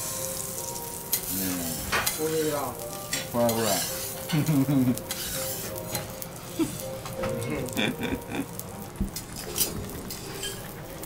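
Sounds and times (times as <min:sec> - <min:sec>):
food sizzling on a griddle: 0:00.0 - 0:11.0.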